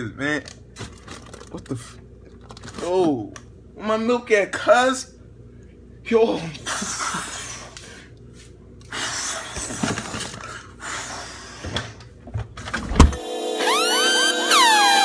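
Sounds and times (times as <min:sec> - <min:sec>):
music: 0:13.1 - 0:15.0
wailing siren-like sound effect: 0:13.2 - 0:15.0.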